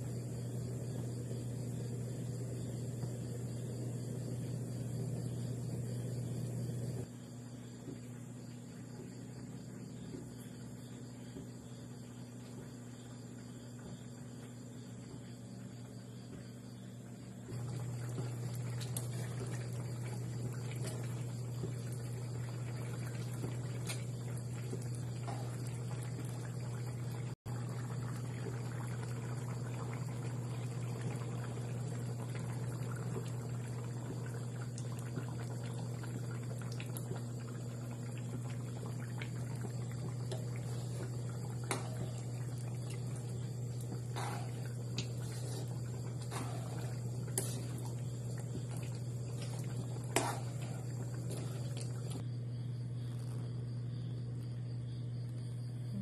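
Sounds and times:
broth simmering in a pan: 0.0s - 53.9s.

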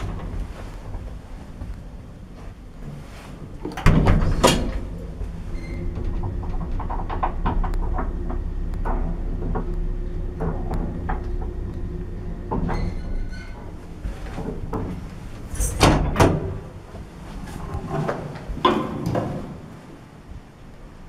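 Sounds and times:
sliding doors opening: 0.0s - 20.3s
lift humming: 0.0s - 21.0s
clicks and rattles: 3.6s - 16.6s.

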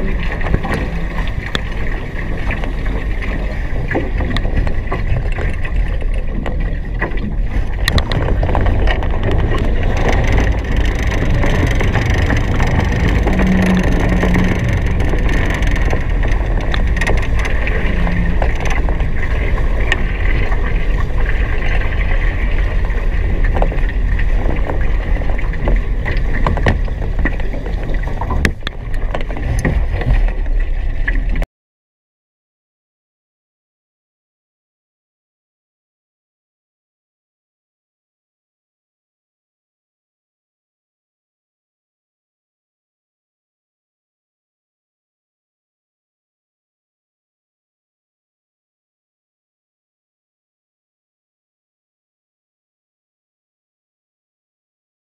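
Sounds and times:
wind and water rushing: 0.0s - 31.4s.

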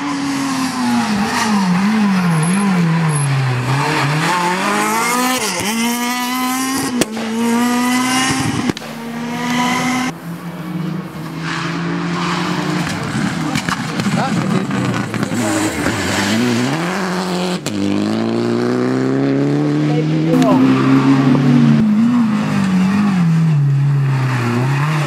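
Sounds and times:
rally car engine revving: 0.0s - 25.0s
sharp crack: 6.8s - 7.6s, 8.2s - 9.0s, 12.8s - 16.2s.

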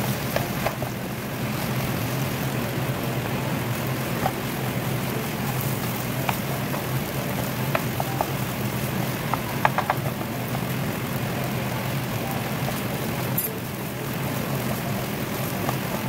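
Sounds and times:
food sizzling in a pan: 0.0s - 16.0s
spatula clicking against pan: 9.2s - 10.7s.

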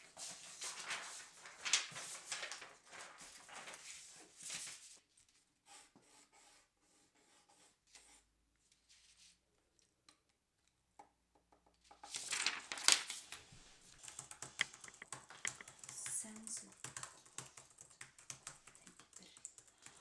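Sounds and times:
paper rustling: 0.0s - 5.0s, 12.0s - 15.7s
pencil scratching on paper: 5.6s - 8.3s.

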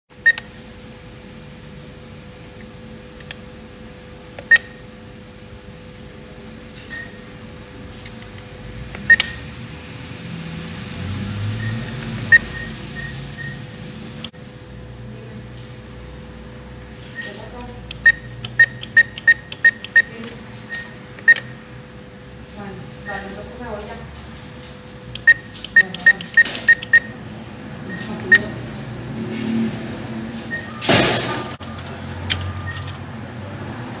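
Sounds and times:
machine humming: 0.1s - 34.0s
short electronic beeps: 11.6s - 13.7s, 18.0s - 20.1s, 25.2s - 27.2s, 27.9s - 28.6s, 31.6s - 32.9s.

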